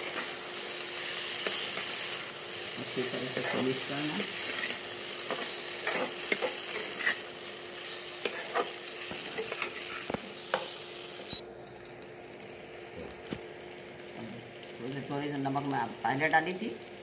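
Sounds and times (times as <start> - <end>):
frying sizzle: 0.0 - 17.0
metal spatula scraping a pan: 3.1 - 10.1.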